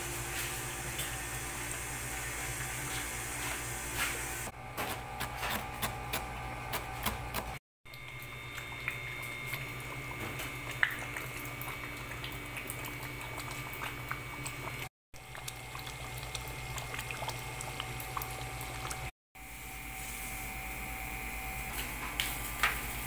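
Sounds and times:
knife chopping on cutting board: 0:04.8 - 0:07.6
sauce bubbling in a pot: 0:07.9 - 0:19.1.

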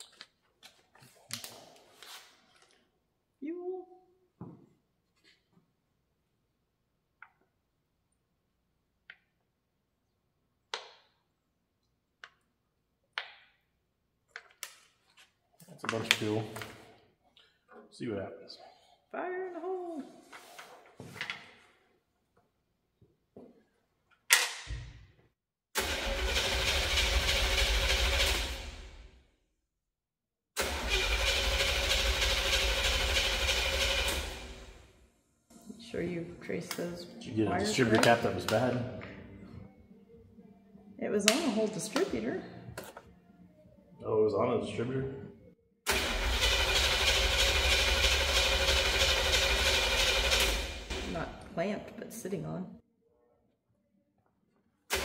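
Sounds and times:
truck engine cranking: 0:25.8 - 0:28.8, 0:30.6 - 0:34.7, 0:45.9 - 0:51.0.

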